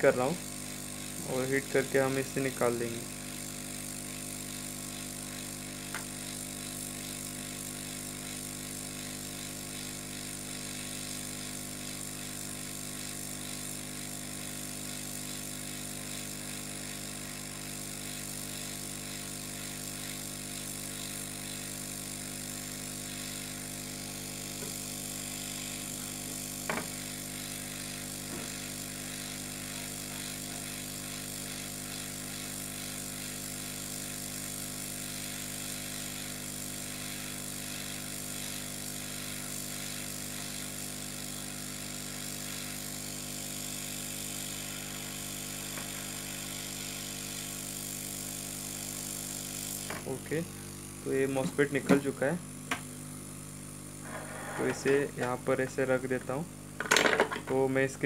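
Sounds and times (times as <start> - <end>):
hot-air gun blowing: 0.0 - 56.9.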